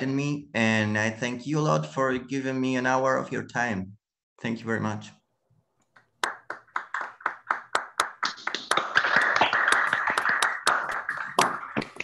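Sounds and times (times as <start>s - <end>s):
applause over video call: 5.9s - 12.0s.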